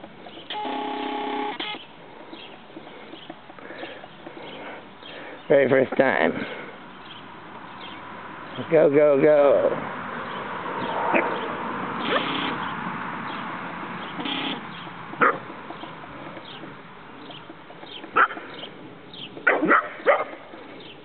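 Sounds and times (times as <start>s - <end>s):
puppies yipping: 12.0s - 12.7s, 14.2s - 16.7s, 17.3s - 18.6s, 19.4s - 20.6s.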